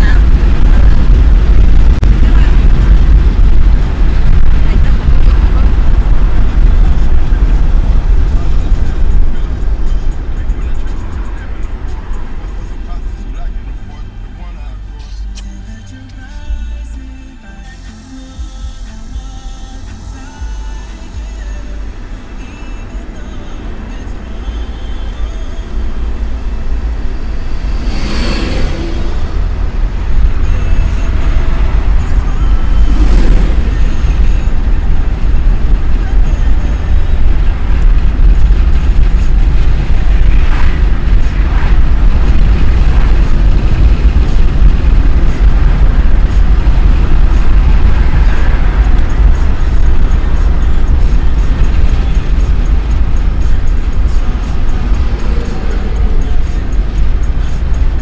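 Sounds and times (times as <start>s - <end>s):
road and wind rumble: 0.0s - 58.0s
brief whooshes: 27.3s - 29.6s.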